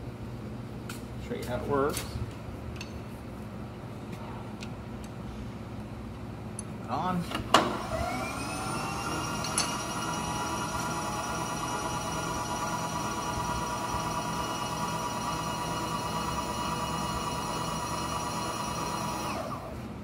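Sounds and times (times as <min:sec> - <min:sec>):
power feed motor whining: 0:07.6 - 0:19.8.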